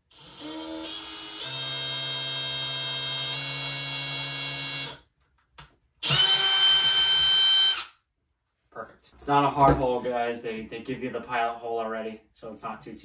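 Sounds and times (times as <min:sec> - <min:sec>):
cordless drill boring plastic: 0:00.1 - 0:05.0, 0:06.0 - 0:07.9.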